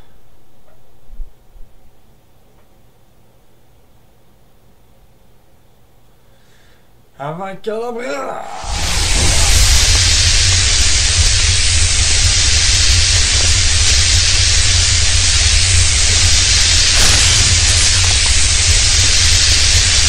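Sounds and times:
magic spell hiss with deep rumble: 0:08.4 - 0:20.0.

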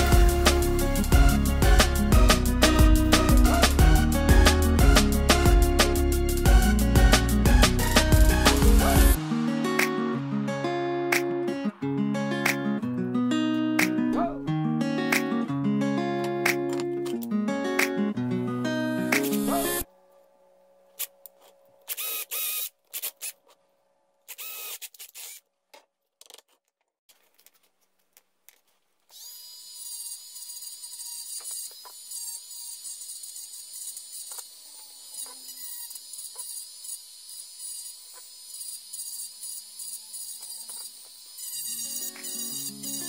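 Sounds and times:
rotary tool high whine: 0:21.0 - 0:23.4, 0:24.3 - 0:25.4, 0:29.1 - 0:43.0
cordless drill boring through plywood: 0:21.9 - 0:23.3, 0:24.3 - 0:25.4, 0:29.1 - 0:43.0.

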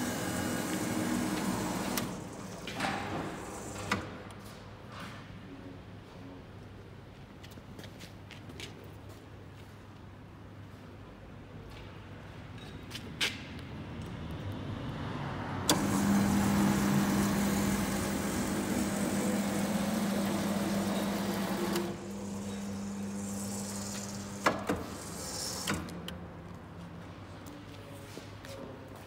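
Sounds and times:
motor starting click: 0:00.0 - 0:04.1, 0:15.7 - 0:25.9
motor drive humming: 0:15.7 - 0:25.8.

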